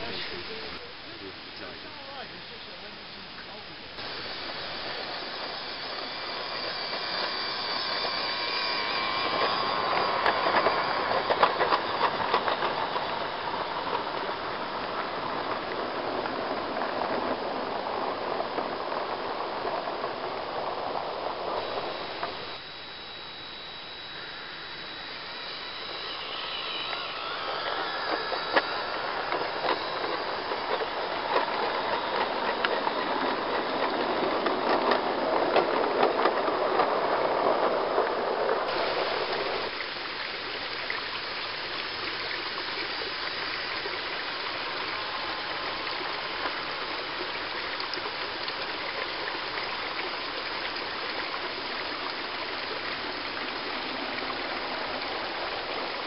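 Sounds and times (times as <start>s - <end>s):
model train rolling on track: 0.0s - 56.0s
steady rushing noise: 3.6s - 56.0s
small wheel clicks: 4.8s - 17.3s, 24.7s - 37.4s.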